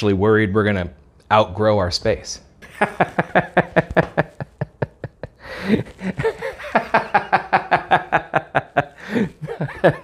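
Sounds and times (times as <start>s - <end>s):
man laughing hard: 2.6s - 10.0s
man gasping in-breath: 5.4s - 6.0s, 9.0s - 9.4s.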